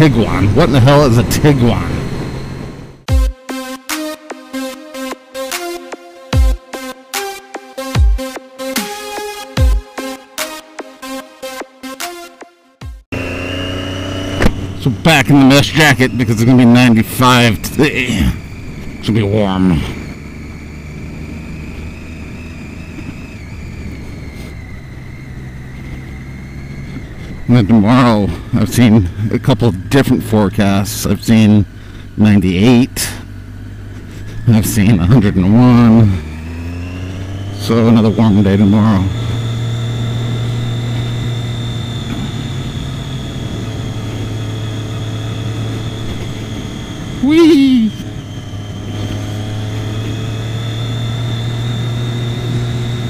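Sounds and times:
road and wind noise: 0.0s - 3.1s, 13.1s - 53.0s
motorcycle engine running: 0.0s - 3.4s, 4.6s - 11.2s, 12.8s - 53.0s
thin high whine: 13.2s - 53.0s.

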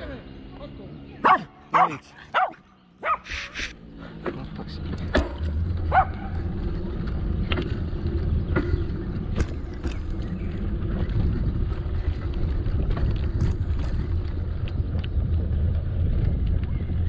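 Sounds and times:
bicycle riding rumble: 0.0s - 17.0s
wind buffeting microphone: 4.3s - 17.0s.

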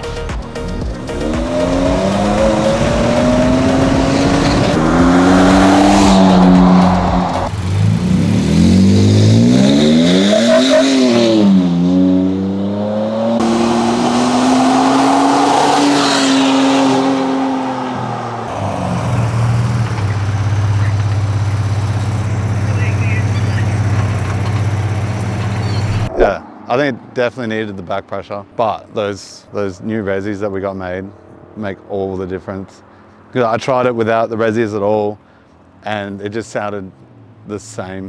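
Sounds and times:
engine exhaust accelerating hard: 0.1s - 26.4s.

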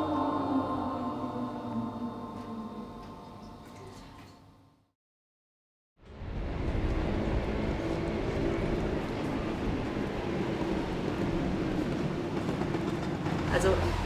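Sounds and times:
city street traffic rumble: 6.0s - 14.0s.

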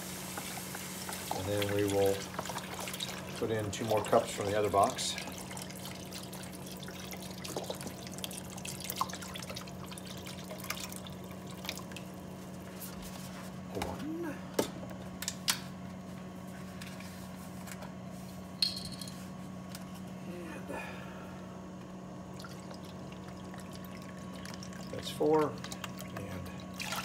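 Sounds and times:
broth splashing into a pan: 4.3s - 12.3s, 22.3s - 27.0s.

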